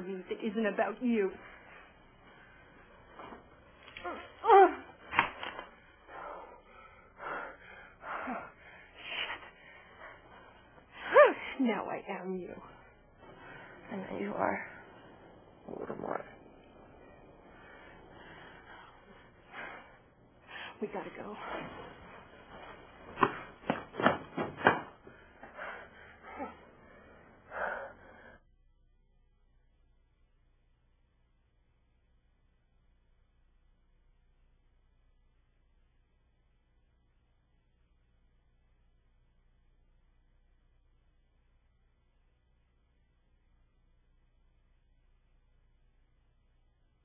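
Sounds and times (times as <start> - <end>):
heavy ragged breaths: 1.3 - 3.8, 5.7 - 11.6, 12.6 - 23.9, 25.0 - 28.4.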